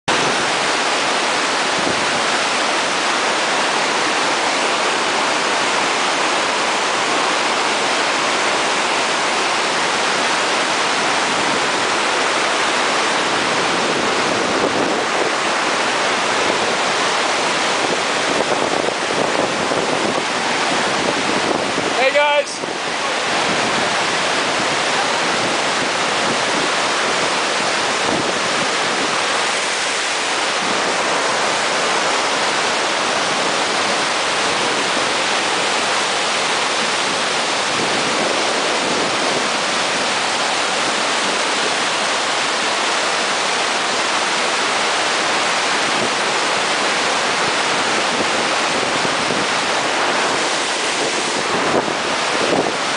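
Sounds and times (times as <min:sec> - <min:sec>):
waterfall rushing over boulders: 0:00.1 - 0:52.9.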